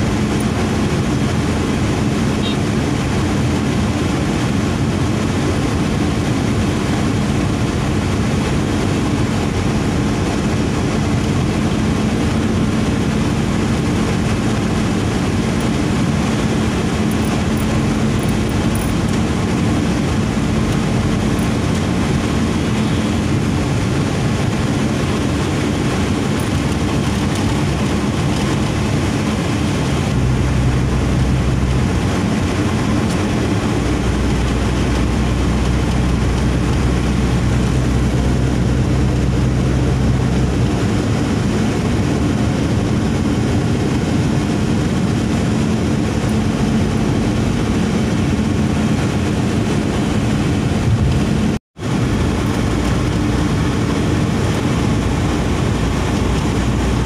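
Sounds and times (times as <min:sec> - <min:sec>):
car engine drone: 0:00.0 - 0:57.0
deeper drone: 0:00.0 - 0:57.0.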